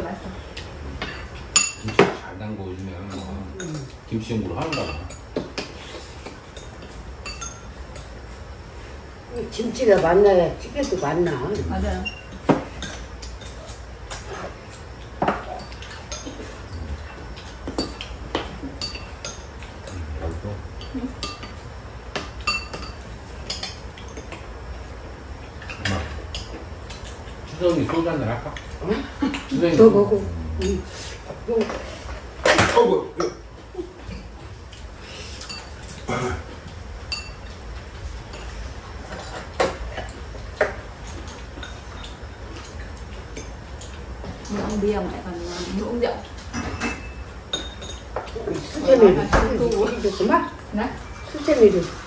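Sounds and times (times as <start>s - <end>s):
cutlery clinking on ceramic bowls: 1.0s - 2.3s, 4.6s - 5.7s, 6.5s - 8.2s, 17.3s - 20.0s, 20.8s - 24.5s, 37.1s - 37.6s, 46.3s - 48.4s.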